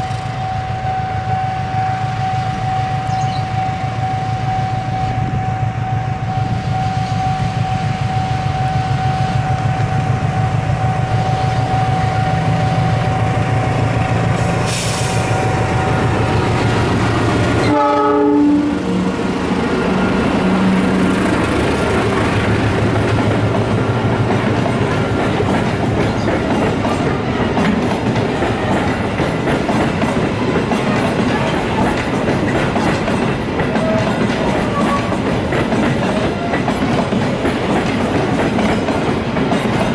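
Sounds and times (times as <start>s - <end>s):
train horn blast: 0.0s - 13.1s, 17.4s - 21.4s, 33.7s - 35.2s
diesel locomotive running: 0.0s - 39.9s
train wheels clattering: 20.3s - 39.9s.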